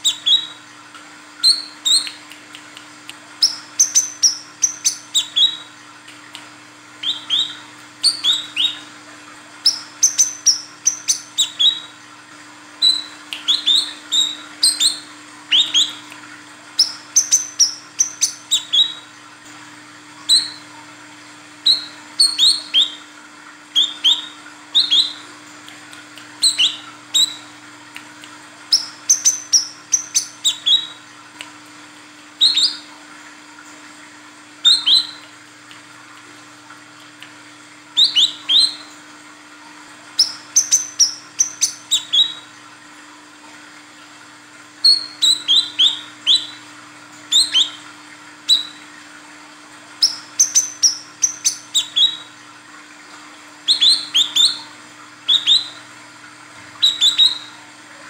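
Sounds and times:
bird high chirps: 0:00.0 - 0:00.6, 0:03.4 - 0:05.7, 0:07.0 - 0:08.9, 0:09.6 - 0:12.0, 0:12.8 - 0:16.0, 0:16.8 - 0:19.0, 0:20.3 - 0:20.7, 0:21.6 - 0:23.0, 0:23.8 - 0:25.3, 0:26.4 - 0:27.5, 0:28.7 - 0:31.0, 0:32.4 - 0:32.9, 0:34.6 - 0:35.2, 0:38.0 - 0:38.9, 0:40.2 - 0:42.5, 0:44.8 - 0:46.6, 0:47.3 - 0:47.8, 0:48.5 - 0:48.8, 0:50.0 - 0:52.3, 0:53.7 - 0:54.7, 0:55.3 - 0:55.8, 0:56.8 - 0:57.6.

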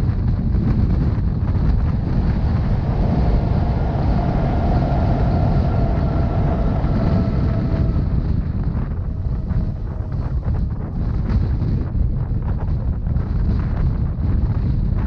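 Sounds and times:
train rumbling on track: 0:00.0 - 0:15.0
faint steady whine: 0:01.2 - 0:11.5.

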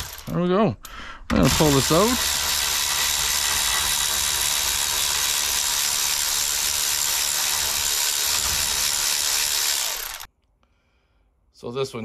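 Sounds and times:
electric ratchet running: 0:00.0 - 0:00.3, 0:01.4 - 0:10.3.

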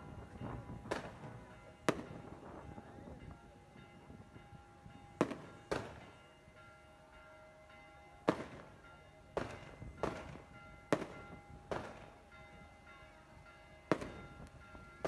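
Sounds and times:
firecracker bangs with echo: 0:00.4 - 0:02.6, 0:05.2 - 0:06.2, 0:08.2 - 0:08.8, 0:09.4 - 0:12.2, 0:13.9 - 0:14.4.

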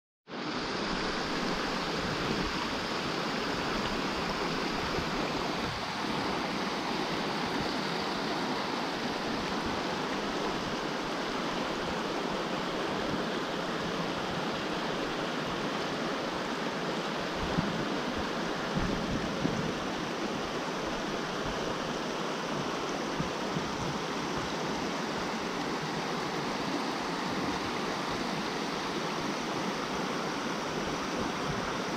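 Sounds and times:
stream rushing over stones: 0:00.3 - 0:31.9.

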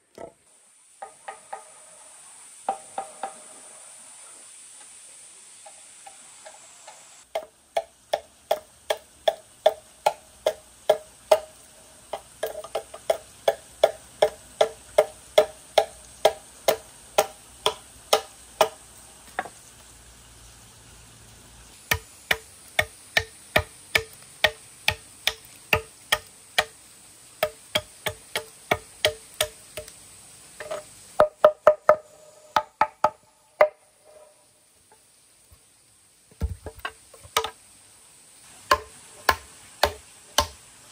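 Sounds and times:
machete chopping wood: 0:07.3 - 0:11.5, 0:12.4 - 0:18.8, 0:21.9 - 0:26.8, 0:27.4 - 0:29.9, 0:36.4 - 0:37.6, 0:38.7 - 0:40.6.

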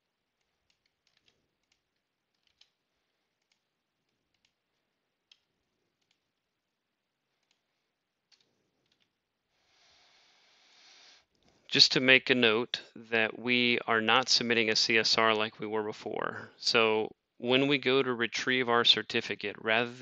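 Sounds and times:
computer keyboard typing: 0:00.4 - 0:04.6, 0:05.2 - 0:06.4
mouse clicking: 0:00.4 - 0:06.5, 0:07.3 - 0:07.7.

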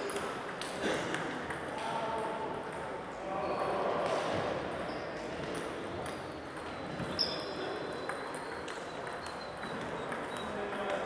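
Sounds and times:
table tennis balls clicking: 0:00.0 - 0:03.1, 0:05.4 - 0:11.0
murmur of large hall: 0:00.0 - 0:11.0.

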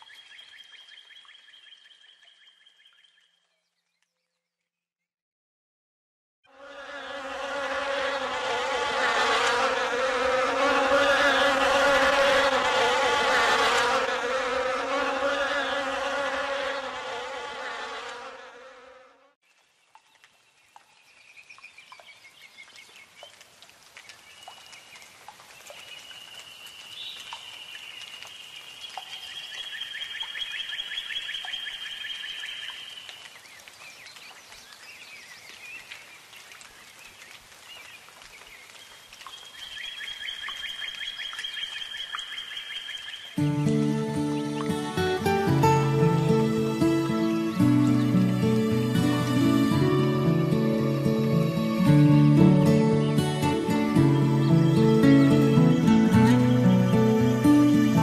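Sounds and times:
bee buzzing: 0:06.5 - 0:19.4.

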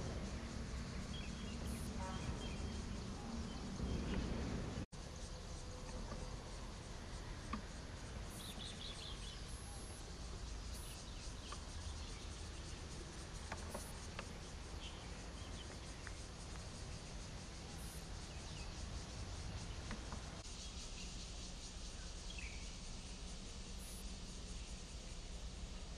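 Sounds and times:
insect chirring: 0:00.0 - 0:25.9
bird chirps: 0:08.3 - 0:10.0.

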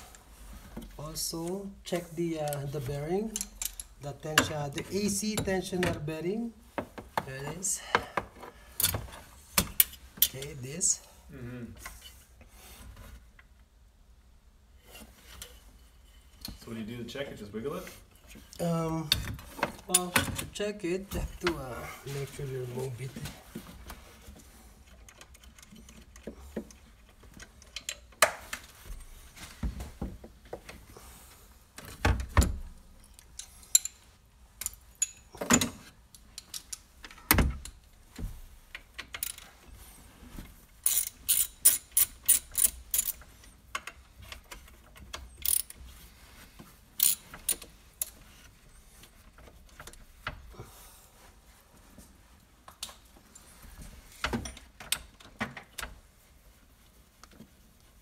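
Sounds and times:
hand tools clinking on metal: 0:34.6 - 0:35.7
ratchet wrench clicking: 0:40.8 - 0:43.2, 0:45.4 - 0:45.8, 0:47.0 - 0:47.6.

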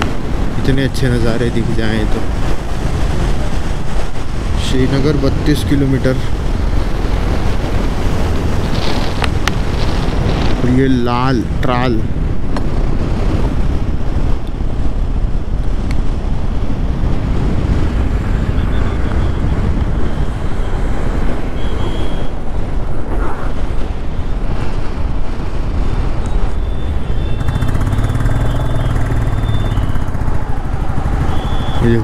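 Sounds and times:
wind buffeting microphone: 0:00.0 - 0:32.0
motorcycle engine running: 0:26.9 - 0:32.0.

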